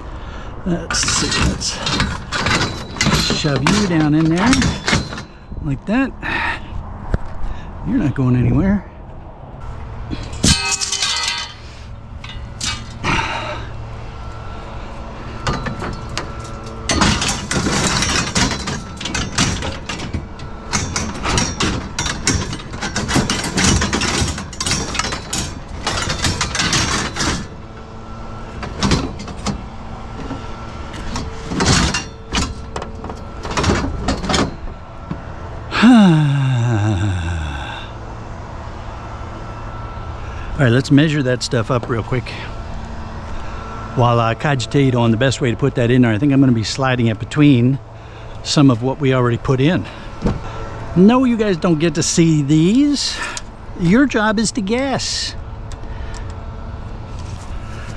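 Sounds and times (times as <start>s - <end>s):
scrap metal clattering: 0.8s - 5.5s, 10.1s - 35.3s.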